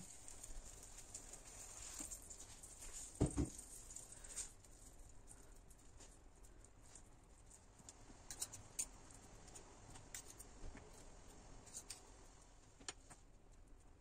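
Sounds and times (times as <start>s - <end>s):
cutlery clicking and scraping plate: 8.3s - 8.9s.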